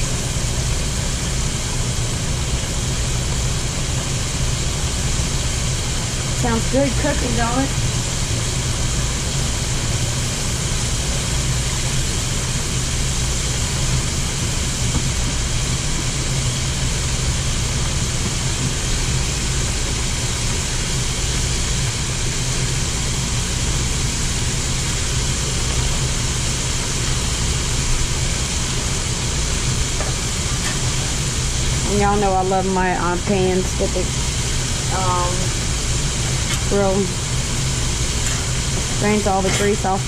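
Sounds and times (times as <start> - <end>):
shrimp sizzling in hot oil: 0.0 - 40.0.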